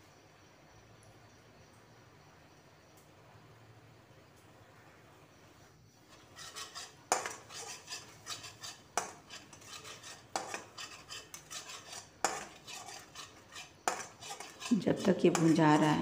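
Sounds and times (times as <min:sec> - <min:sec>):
spatula scraping metal pan: 0:06.0 - 0:16.0
spatula knocking against pan: 0:07.1 - 0:14.7, 0:15.3 - 0:16.0.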